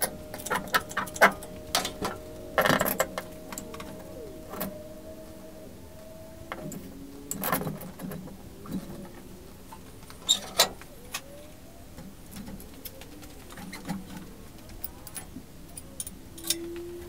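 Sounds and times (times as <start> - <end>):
metal clinks and knocks: 0.2 - 4.7.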